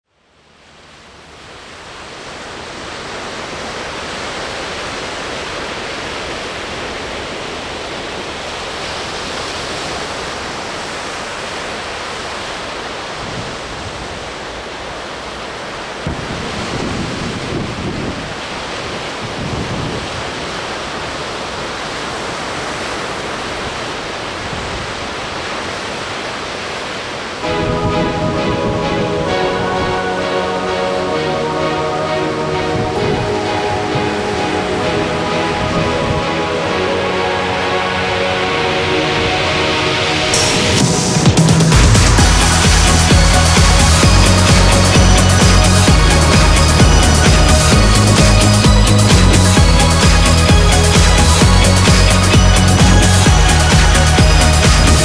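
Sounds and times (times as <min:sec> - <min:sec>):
ocean waves rushing: 0:00.3 - 0:55.0
heavy wave crashes: 0:00.8 - 0:55.0
music: 0:27.4 - 0:55.0.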